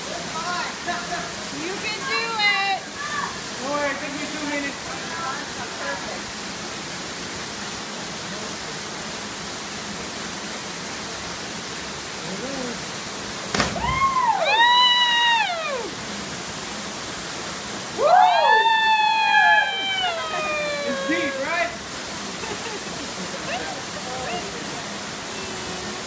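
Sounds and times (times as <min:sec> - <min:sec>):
waterfall and stream rushing: 0:00.0 - 0:26.0
sharp knock: 0:13.5 - 0:13.9
people whooping and shouting: 0:13.7 - 0:16.0, 0:17.9 - 0:21.8.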